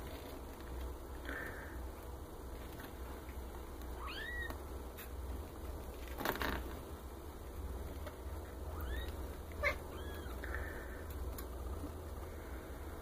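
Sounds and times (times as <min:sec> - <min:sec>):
kittens mewing: 0:08.6 - 0:10.6.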